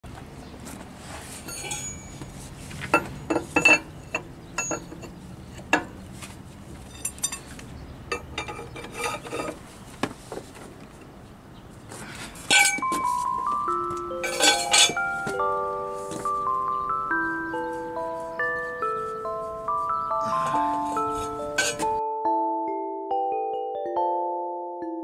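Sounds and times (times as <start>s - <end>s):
steel wrench clinking and clanking: 1.5s - 2.2s, 2.9s - 5.9s, 6.9s - 7.5s, 8.1s - 9.6s, 12.5s - 13.0s, 14.2s - 15.1s, 21.2s - 21.9s
sharp ringing metal knocks: 1.5s - 2.3s, 2.9s - 6.0s, 8.1s - 9.6s, 12.5s - 13.1s, 14.2s - 15.4s, 20.3s - 22.0s.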